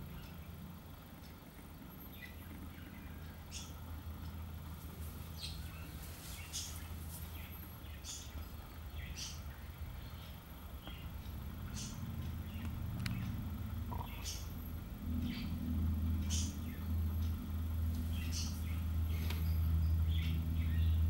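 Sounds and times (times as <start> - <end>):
low hum: 0.0 - 21.0
small birds chirping: 0.0 - 21.0.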